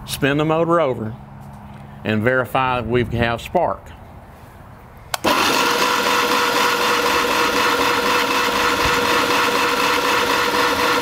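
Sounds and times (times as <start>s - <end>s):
electric starter cranking engine: 5.1s - 11.0s.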